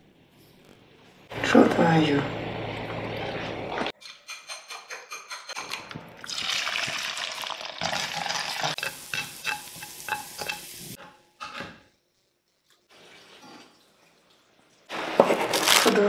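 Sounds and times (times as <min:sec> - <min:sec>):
eggs sizzling in hot oil: 0:06.2 - 0:13.1.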